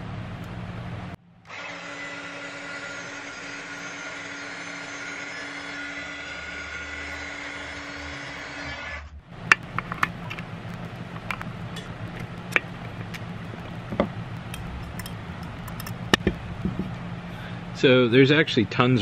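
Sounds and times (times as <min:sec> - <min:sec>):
whirring hum: 0:00.0 - 0:19.0
metal housing clicks and knocks: 0:09.4 - 0:10.5, 0:11.1 - 0:13.2, 0:13.8 - 0:17.0.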